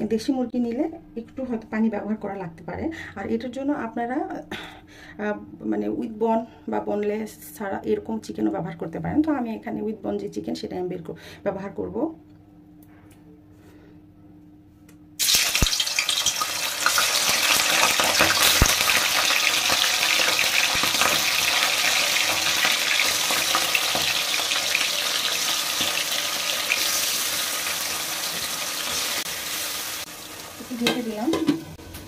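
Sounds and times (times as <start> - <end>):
chicken sizzling in hot oil: 15.2 - 32.0.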